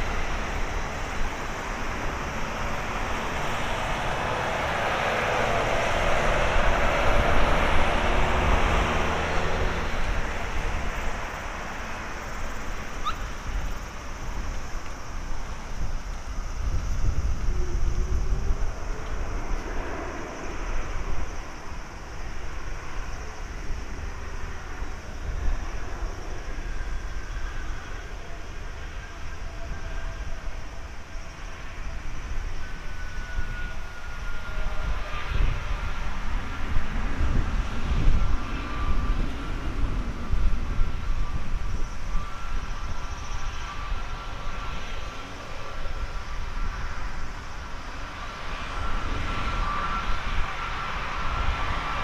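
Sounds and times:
jet engines running: 0:00.0 - 0:52.0
thin whine of fan tones: 0:00.0 - 0:52.0.

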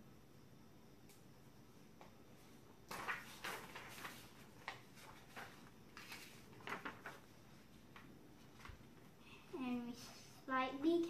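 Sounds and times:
paper rustling: 0:02.8 - 0:09.1.

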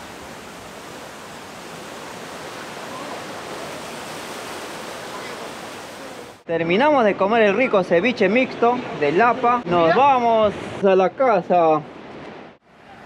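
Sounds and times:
sea surf washing over rocks: 0:00.0 - 0:06.4.

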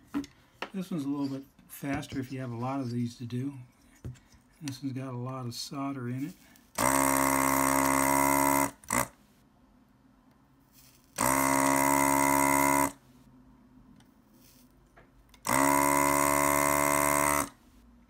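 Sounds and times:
desoldering vacuum pump humming: 0:06.7 - 0:09.2, 0:11.2 - 0:13.0, 0:15.3 - 0:17.6.

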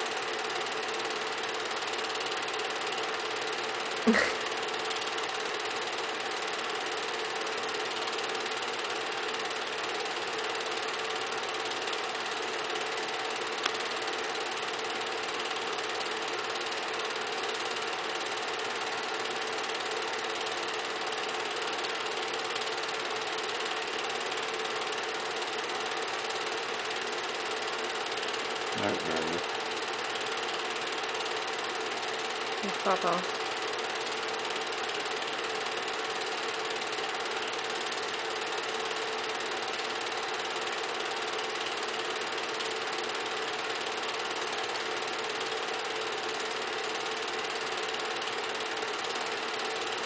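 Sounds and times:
film projector whirring: 0:00.0 - 0:50.0
small tick: 0:13.6 - 0:13.8.

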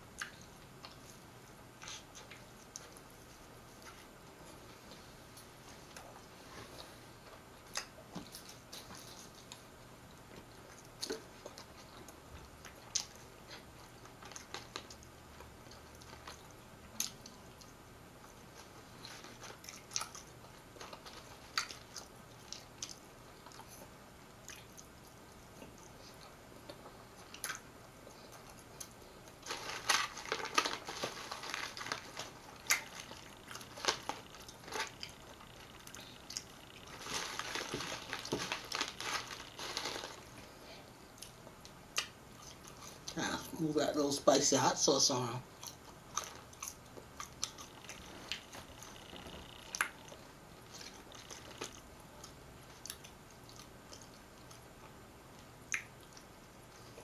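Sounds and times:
person chewing fries: 0:00.0 - 0:43.2, 0:45.5 - 0:57.0
wet mouth clicks and smacks: 0:55.7 - 0:56.2.

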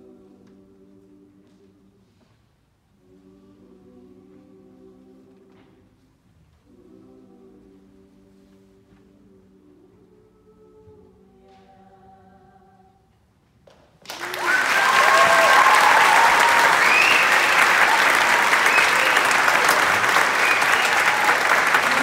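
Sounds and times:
audience applauding: 0:14.0 - 0:22.0
audience cheering: 0:14.1 - 0:22.0.

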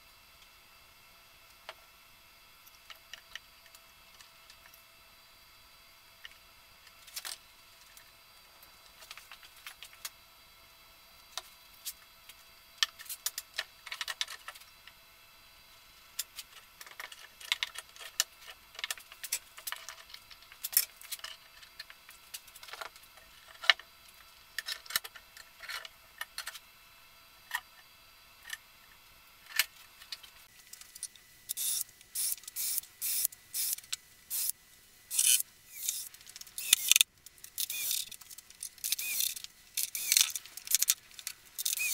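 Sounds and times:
cordless drill drilling into wood: 0:38.9 - 0:39.3.

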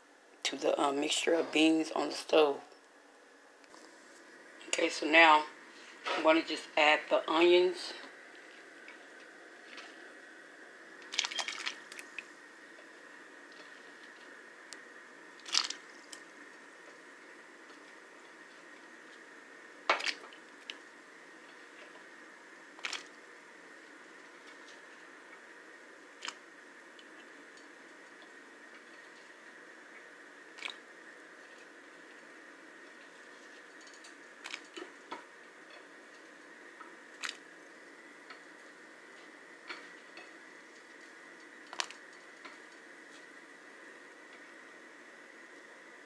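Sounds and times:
faint steady hum: 0:00.0 - 0:46.0
onion crunching and squishing: 0:15.4 - 0:16.2, 0:22.8 - 0:23.1.

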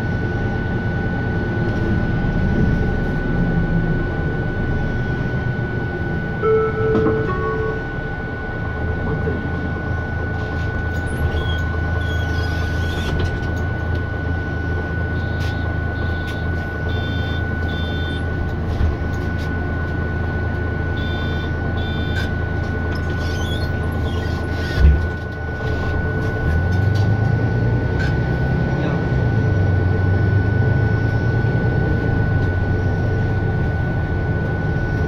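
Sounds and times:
bus cabin engine hum and whine: 0:00.0 - 0:35.0
short electronic beeps: 0:06.4 - 0:08.3, 0:15.1 - 0:18.3, 0:21.0 - 0:22.4.

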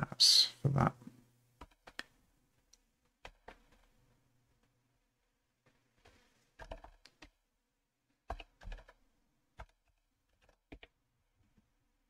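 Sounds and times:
faint keyboard typing: 0:01.6 - 0:04.7, 0:05.6 - 0:07.4, 0:08.1 - 0:11.7.

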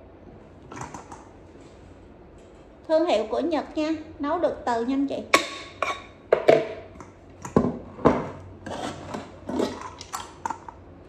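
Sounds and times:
pressure cooker lid scraping: 0:08.2 - 0:09.9.

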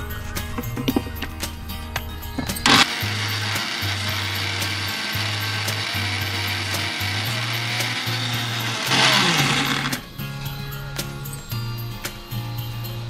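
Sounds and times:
mixer grinder motor running: 0:02.4 - 0:10.1.

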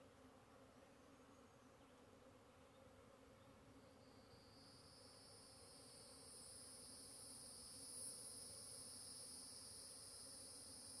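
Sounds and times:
high-pitched insect trill: 0:03.9 - 0:11.0.

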